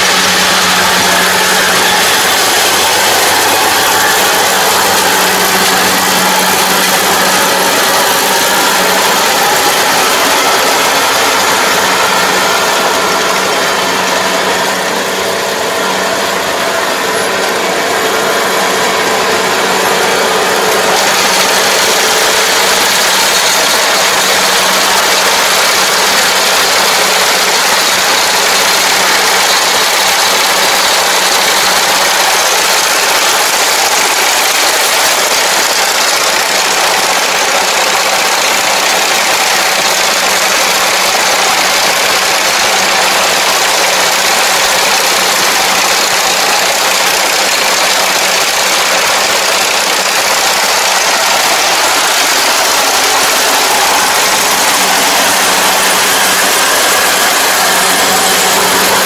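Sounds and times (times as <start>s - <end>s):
diesel engine running: 0.0s - 59.0s
mechanical rattle: 19.1s - 59.0s.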